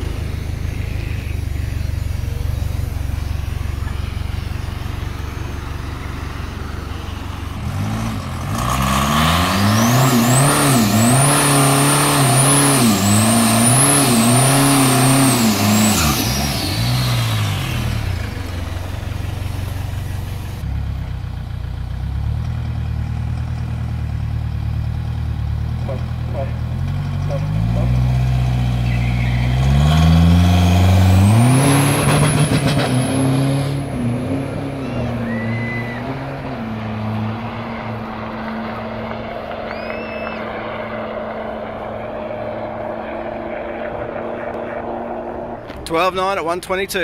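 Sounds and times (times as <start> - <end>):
diesel engine revving: 0.0 - 47.0
turbo whistle: 34.8 - 36.2, 39.7 - 40.6.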